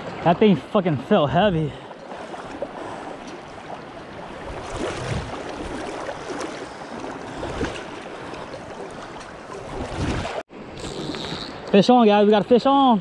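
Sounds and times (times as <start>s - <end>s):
river water rushing: 1.9s - 10.8s.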